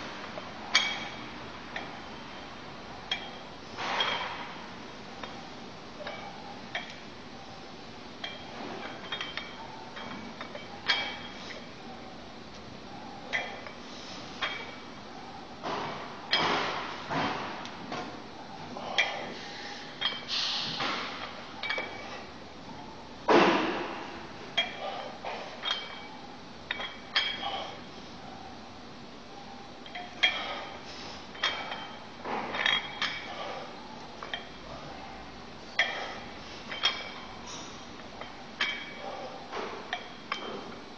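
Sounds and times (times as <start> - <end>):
metal weights clinking: 0.4 - 2.1, 3.0 - 4.6, 5.2 - 7.0, 8.2 - 12.0, 13.2 - 15.0, 15.8 - 17.4, 18.8 - 22.3, 23.7 - 27.9, 29.8 - 35.0, 35.7 - 40.8.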